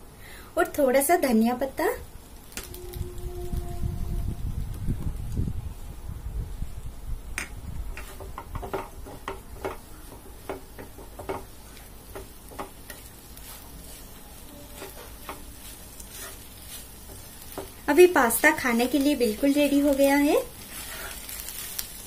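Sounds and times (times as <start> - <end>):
faint sizzle: 0.0 - 22.0
wooden spatula scraping a pan: 7.9 - 22.0.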